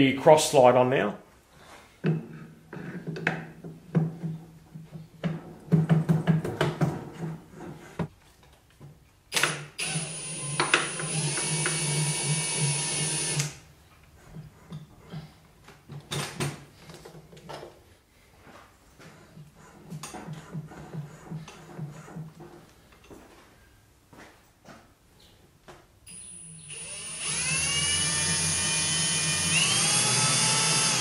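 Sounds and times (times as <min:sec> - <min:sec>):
cordless drill running: 0:09.8 - 0:13.6, 0:26.1 - 0:31.0.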